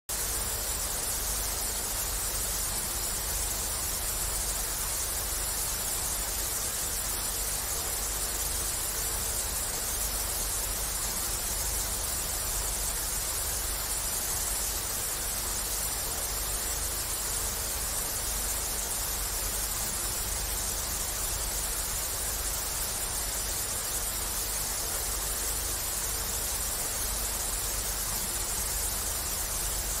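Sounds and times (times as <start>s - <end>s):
television static hiss: 0.1s - 30.0s.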